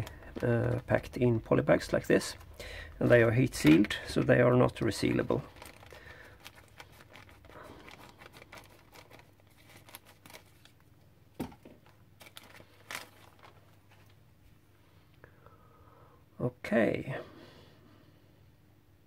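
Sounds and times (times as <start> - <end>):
plastic bag crinkling: 0.0 - 14.2.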